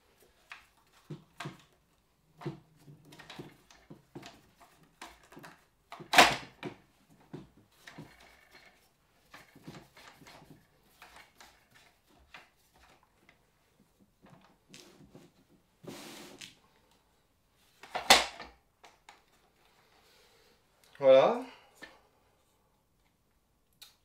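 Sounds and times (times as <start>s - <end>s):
gun handling clicks and knocks: 2.4s - 13.4s, 17.8s - 19.4s.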